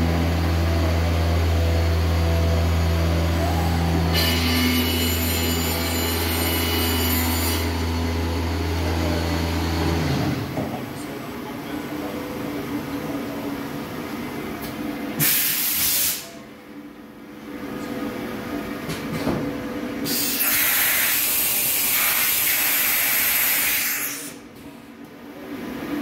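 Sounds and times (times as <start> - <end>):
machine humming: 0.0 - 15.0
compressed air hissing: 15.2 - 16.3, 20.0 - 24.4.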